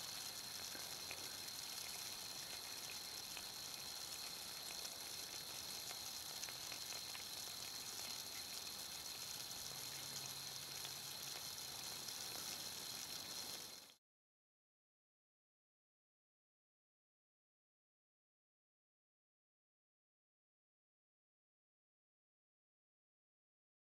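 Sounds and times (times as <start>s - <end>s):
bubbles fizzing in water: 0.0s - 14.0s
faint ticks: 0.0s - 14.0s.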